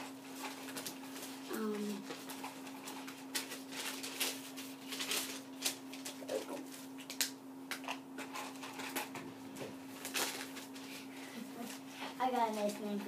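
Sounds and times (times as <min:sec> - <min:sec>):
paper rustling and crinkling: 0:00.0 - 0:07.3, 0:09.9 - 0:13.0.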